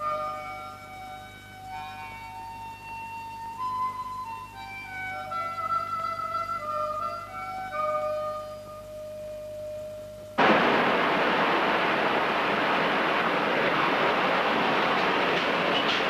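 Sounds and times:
loud steady rushing noise: 10.4 - 16.0.

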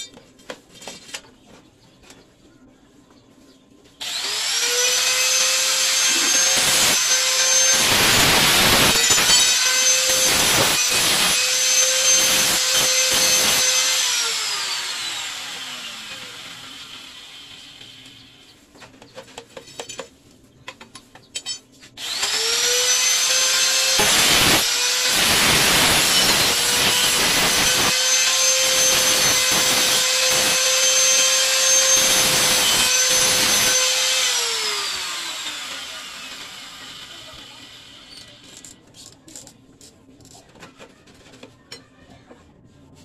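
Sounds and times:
blade cutting metal rod: 4.0 - 17.1, 22.0 - 38.4
power tool motor whine: 4.0 - 18.2, 22.0 - 38.5.

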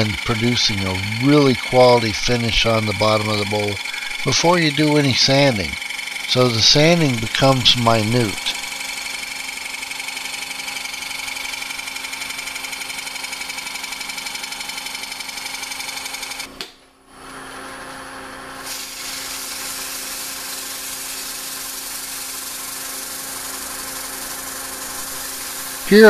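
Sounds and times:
sandpaper hissing on turning wood: 0.0 - 4.8, 18.6 - 26.0
scraper cutting spinning wood: 0.0 - 16.5, 19.2 - 26.0
wood lathe running: 0.0 - 16.5, 18.6 - 26.0.

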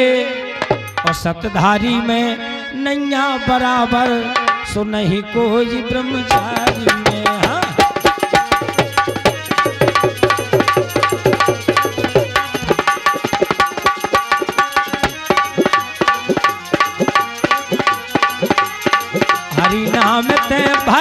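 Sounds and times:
hand drums fast rhythm: 0.6 - 1.3, 6.3 - 21.0
held melody notes: 6.4 - 21.0.

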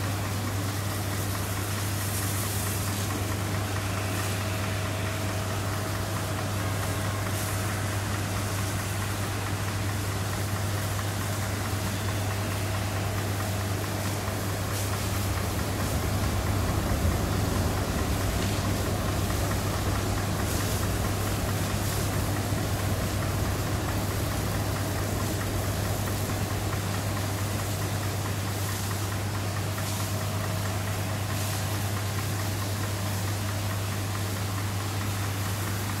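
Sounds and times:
jet aircraft engine noise: 0.0 - 32.4.

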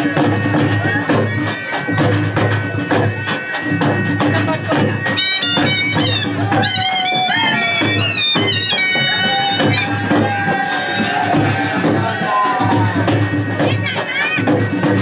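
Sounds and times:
drums beating: 0.0 - 15.0
high wavering melody: 0.1 - 11.8.

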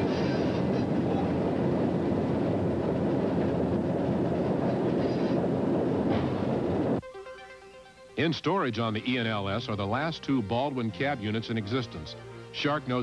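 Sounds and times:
train wheels running on rails: 0.0 - 7.0.

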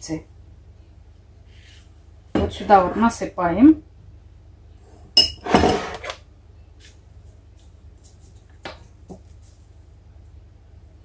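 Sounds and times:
spoon scraping jar: 5.2 - 6.2.

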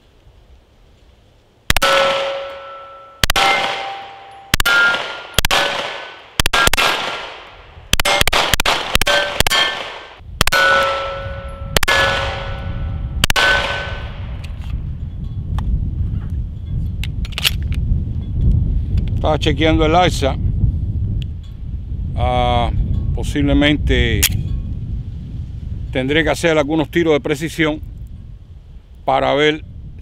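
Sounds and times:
bullets clanging on steel targets: 1.7 - 6.9, 8.0 - 14.1
pistol shots: 1.7 - 14.3.

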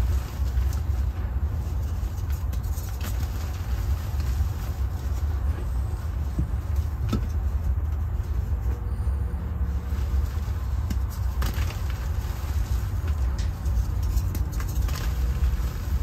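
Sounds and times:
low background rumble: 0.0 - 16.0
chalk crumbling in hands: 10.2 - 16.0.

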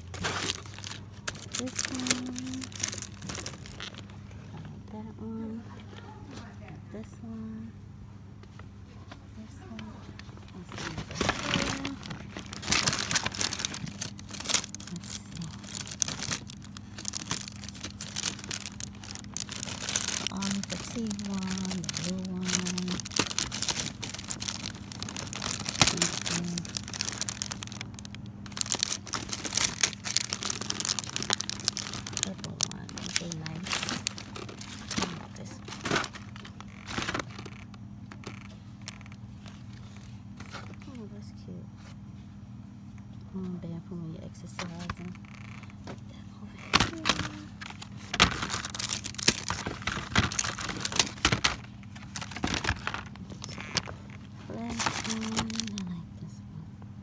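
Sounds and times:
plastic packaging crinkling: 0.0 - 4.4, 9.7 - 40.9, 46.6 - 55.9.

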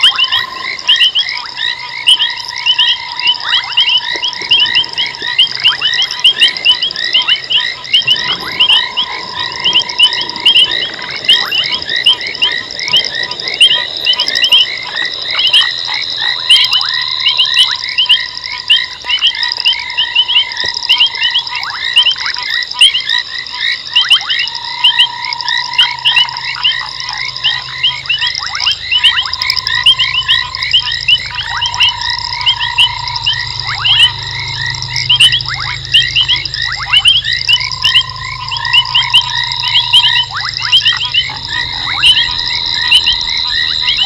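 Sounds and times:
high frog chirps: 0.0 - 44.0
steady high whine: 0.0 - 44.0
low steady note: 24.7 - 44.0.

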